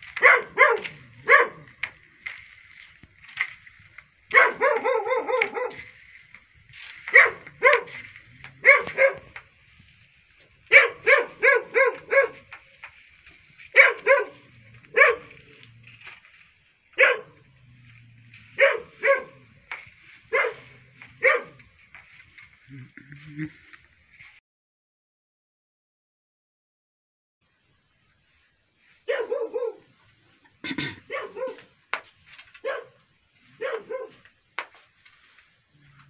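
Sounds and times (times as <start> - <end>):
dog barking high yaps: 0.1 - 1.8, 4.3 - 5.9, 7.0 - 9.4, 10.7 - 12.6, 13.7 - 15.4, 17.0 - 17.4, 18.6 - 19.5, 20.3 - 21.6, 29.0 - 29.9, 31.0 - 31.7, 32.6 - 34.2.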